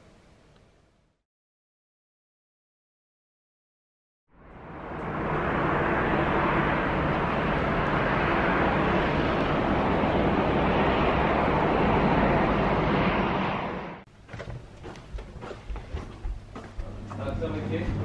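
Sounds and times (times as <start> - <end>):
outdoor rushing noise: 4.3 - 16.4.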